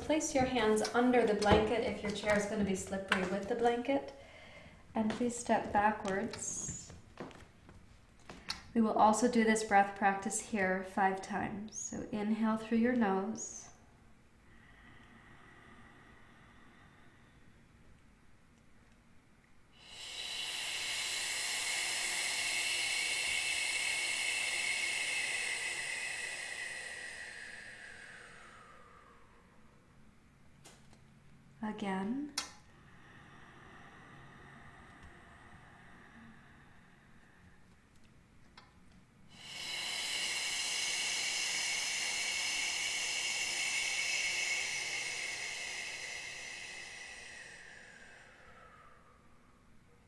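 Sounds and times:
person's hissing exhale: 0:14.5 - 0:17.7, 0:19.8 - 0:29.9, 0:32.6 - 0:37.7, 0:39.3 - 0:50.0.

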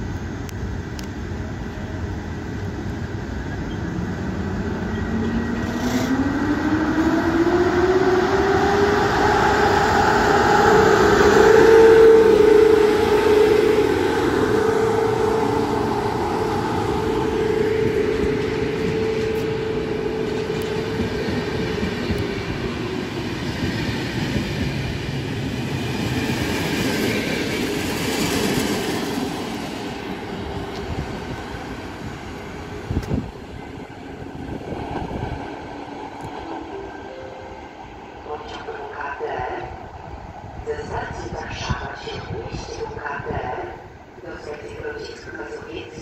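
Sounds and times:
train wheels rumbling on rails: 0:00.0 - 0:37.0
electric locomotive humming: 0:00.0 - 0:46.0.

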